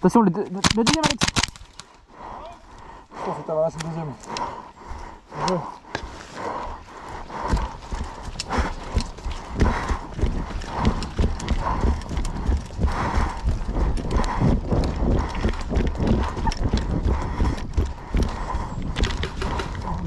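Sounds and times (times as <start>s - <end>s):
running footsteps on mud: 0.6s - 20.0s
hard breathing: 1.7s - 20.0s
gear jostling: 6.3s - 20.0s.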